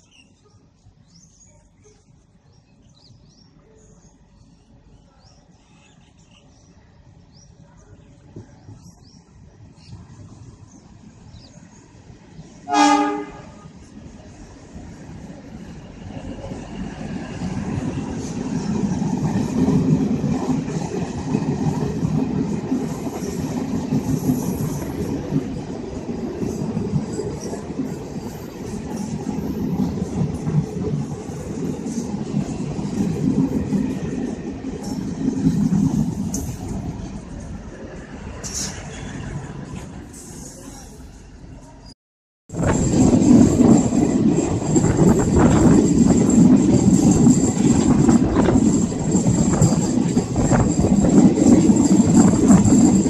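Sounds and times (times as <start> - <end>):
small birds chirping: 0.0 - 12.6
distant train rumble: 0.0 - 53.0.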